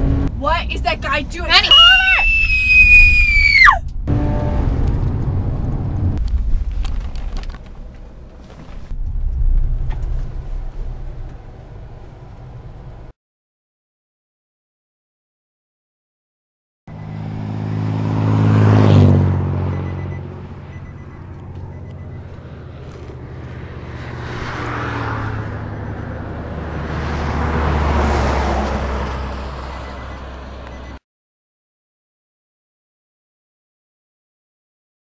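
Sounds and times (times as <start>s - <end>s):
vehicles passing by: 0.0s - 13.1s, 16.9s - 31.0s.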